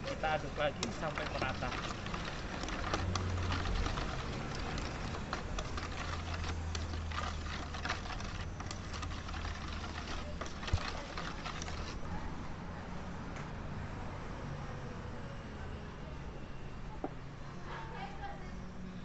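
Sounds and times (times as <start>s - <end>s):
spoon stirring batter in metal bowl: 0.0s - 12.0s.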